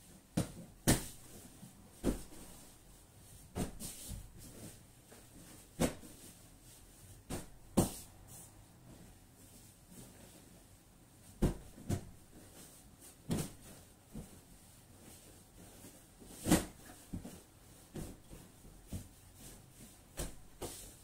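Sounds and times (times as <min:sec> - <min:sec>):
pillows thumping on bed: 0:02.0 - 0:02.6.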